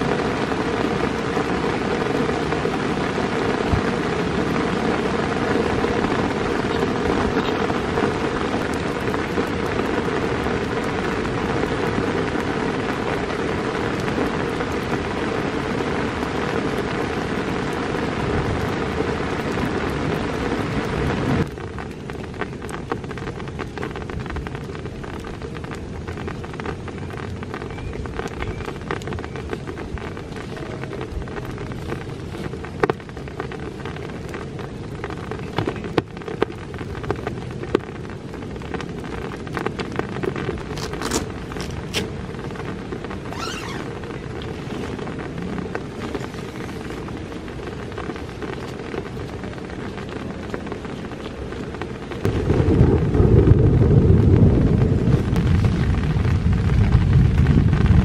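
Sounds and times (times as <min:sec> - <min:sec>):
raindrops ticking: 0:00.0 - 0:58.0
steady rain falling: 0:00.0 - 0:58.0
loud deep rumble: 0:52.2 - 0:58.0.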